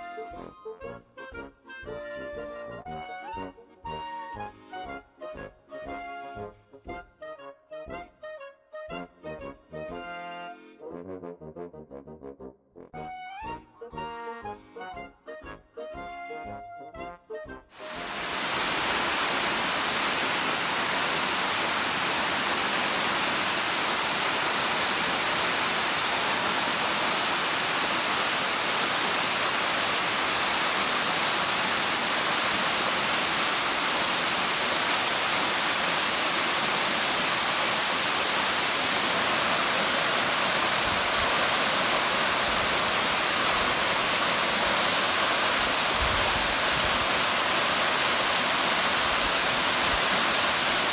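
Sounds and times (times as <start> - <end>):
waterfall rushing water: 17.7 - 50.9.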